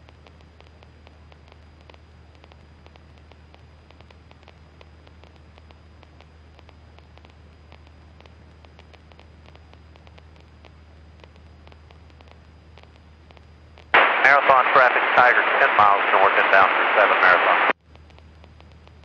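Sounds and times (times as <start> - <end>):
low steady hum: 0.0 - 19.0
crackling clicks: 0.2 - 19.0
radio static hiss: 13.9 - 17.8.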